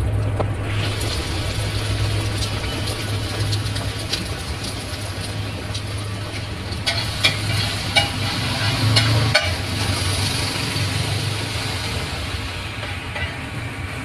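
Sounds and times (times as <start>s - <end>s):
low hum: 0.0s - 14.0s
eggs sizzling on griddle: 0.6s - 14.0s
metal spatula scraping griddle: 6.2s - 10.2s
spatula clacking on griddle: 6.8s - 9.9s.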